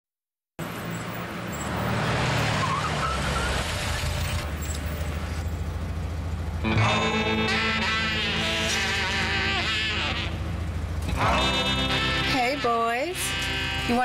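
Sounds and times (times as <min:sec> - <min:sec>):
car engine: 0:00.6 - 0:14.0.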